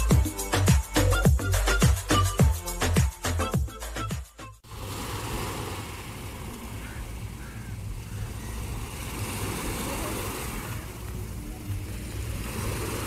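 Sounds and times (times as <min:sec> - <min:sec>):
waves washing onto beach: 0:04.6 - 0:13.0.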